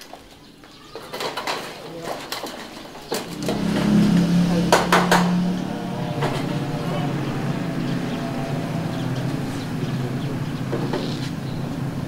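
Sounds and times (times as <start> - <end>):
faint voices: 0.7 - 11.2
low hum: 3.2 - 11.0.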